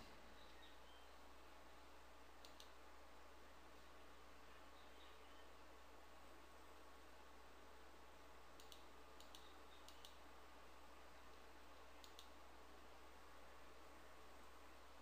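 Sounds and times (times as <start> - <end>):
faint steady hum: 0.0 - 15.0
computer mouse clicks: 2.4 - 2.8, 8.6 - 10.2, 12.0 - 12.4.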